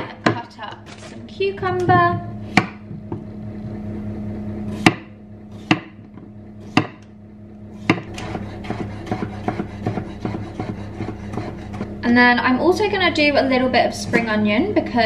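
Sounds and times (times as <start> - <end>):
steady low hum: 0.0 - 15.0
knife cutting cucumber on board: 7.8 - 11.8.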